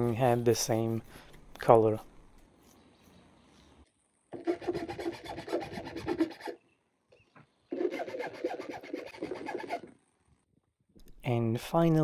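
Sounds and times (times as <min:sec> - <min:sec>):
hand file scraping wood: 0:04.4 - 0:06.6, 0:07.7 - 0:09.9.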